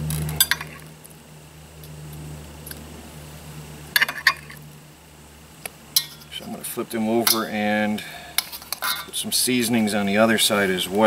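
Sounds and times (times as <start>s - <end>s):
low steady hum: 0.0s - 11.0s
metal tongs clinking on wok: 7.2s - 7.5s.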